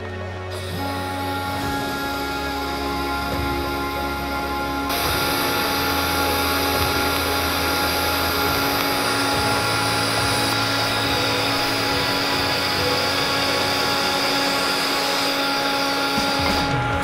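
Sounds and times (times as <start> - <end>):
welding arc buzzing hiss: 0.0 - 17.0.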